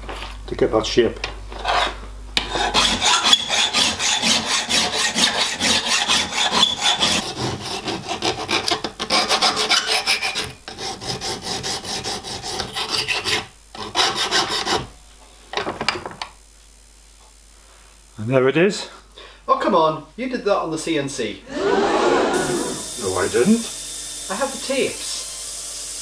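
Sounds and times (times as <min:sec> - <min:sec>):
hand file rasping on steel: 0:01.6 - 0:14.9.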